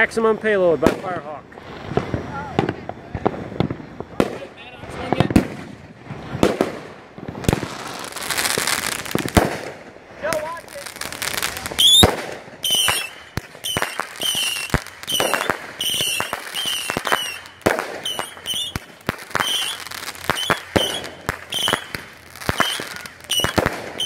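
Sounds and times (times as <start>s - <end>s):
fireworks whistling: 0.0s - 24.0s
fireworks launch thumps and pops: 11.8s - 24.0s.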